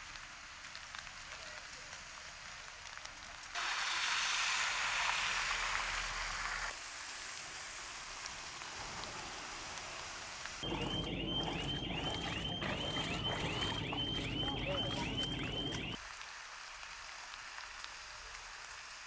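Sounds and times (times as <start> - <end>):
heavy rain on street: 0.0 - 10.7, 15.6 - 19.0.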